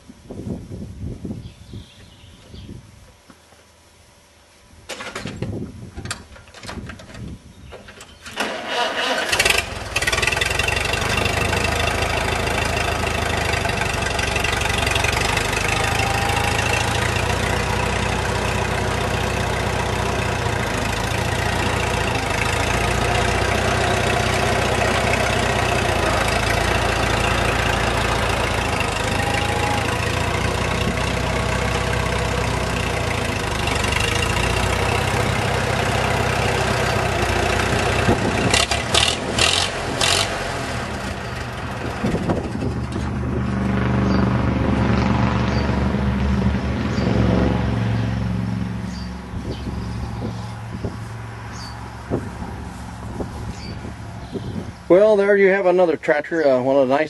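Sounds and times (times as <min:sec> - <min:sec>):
tractor engine cranking and running: 0:04.9 - 0:46.5.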